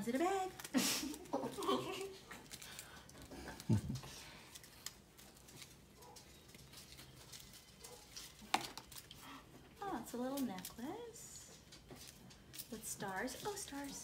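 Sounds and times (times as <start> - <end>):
bag rustling and crinkling: 0.0 - 9.4.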